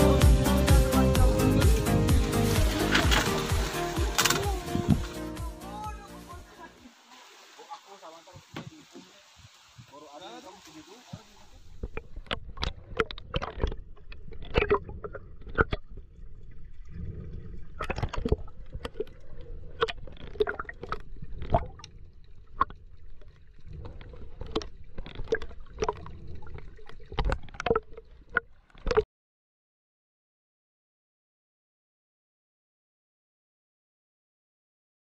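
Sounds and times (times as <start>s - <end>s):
muffled underwater water sloshing: 10.6s - 29.0s.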